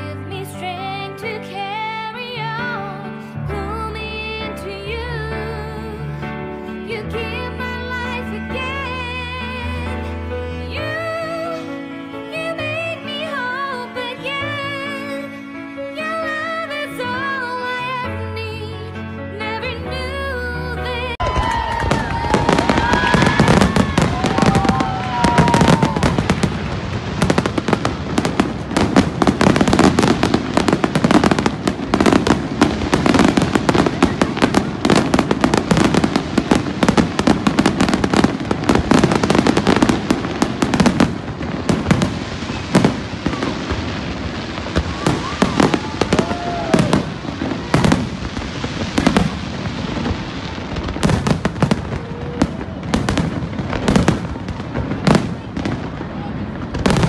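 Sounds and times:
fireworks bangs and crackling: 0:21.2 - 0:57.0.

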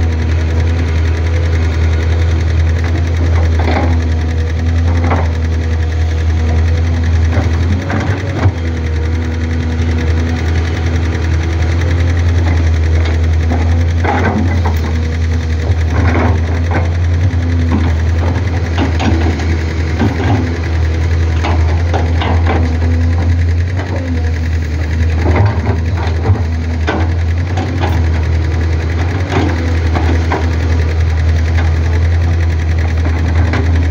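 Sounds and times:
excavator diesel engine running: 0:00.0 - 0:33.9
knocks and clanks: 0:12.4 - 0:33.9.

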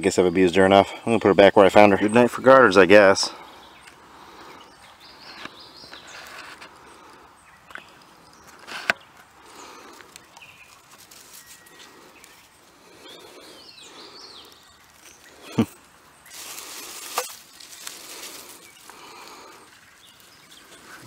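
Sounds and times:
birds chirping and whistling: 0:00.0 - 0:21.0.

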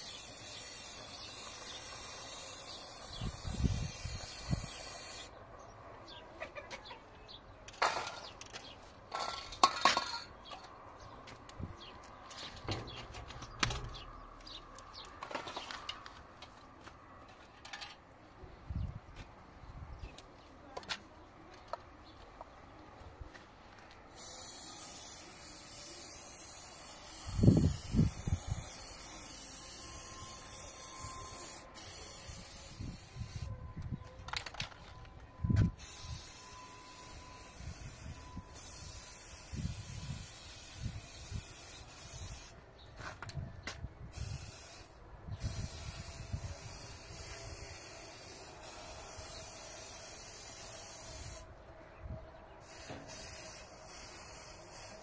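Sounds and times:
spray paint can hissing: 0:00.0 - 0:05.3, 0:24.1 - 0:33.5, 0:35.7 - 0:42.6, 0:44.1 - 0:51.4, 0:52.6 - 0:55.0.

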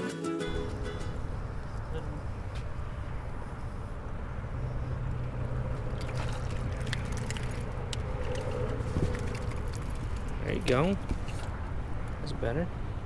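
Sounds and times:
wind rumble on microphone: 0:00.6 - 0:13.0
fish splashing: 0:05.7 - 0:10.3.

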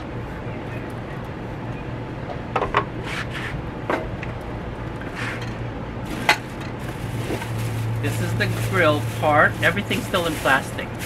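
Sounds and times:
steady low hum: 0:00.0 - 0:11.0
plastic wrap rustling: 0:06.0 - 0:11.0
hands rummaging in plastic bin: 0:06.1 - 0:11.0.

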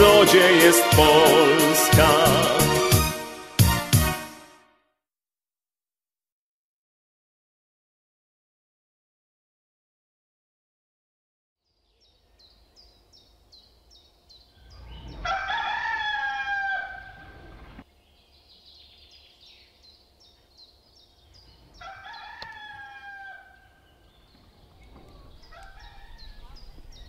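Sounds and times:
small bird chirping: 0:11.6 - 0:15.6, 0:16.4 - 0:27.0
rooster crowing: 0:14.6 - 0:17.8, 0:21.7 - 0:24.1, 0:25.0 - 0:27.0.

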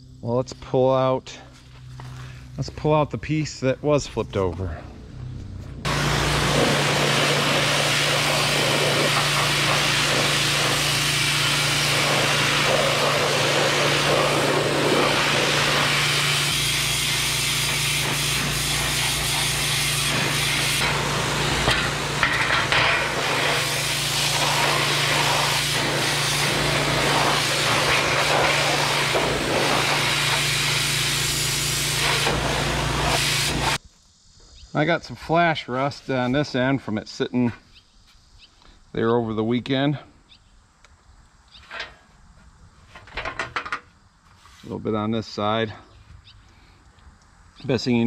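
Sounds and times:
low hum of washer: 0:05.1 - 0:33.8
pressure washer jet hissing on metal: 0:05.9 - 0:33.8.

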